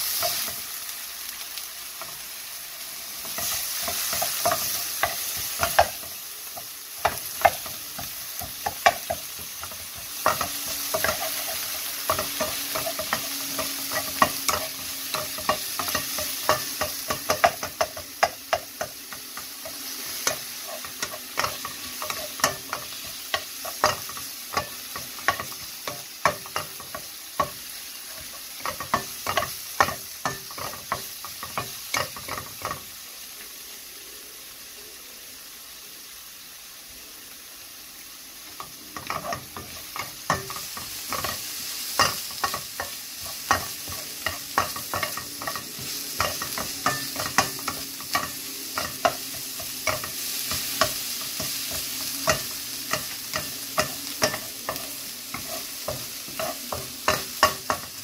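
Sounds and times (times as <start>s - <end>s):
food sizzling in a wok: 0.0s - 58.0s
wooden spatula knocking on pan: 7.0s - 11.5s, 12.1s - 20.4s, 21.0s - 27.6s.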